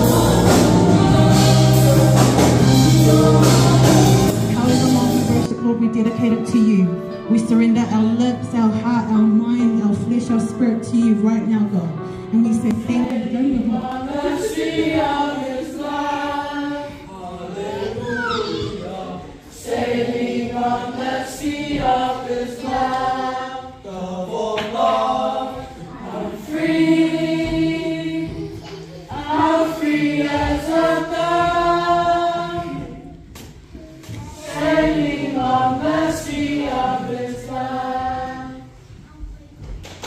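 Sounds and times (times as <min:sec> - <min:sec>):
youth choir singing gospel: 0:00.0 - 0:05.6, 0:07.6 - 0:39.2.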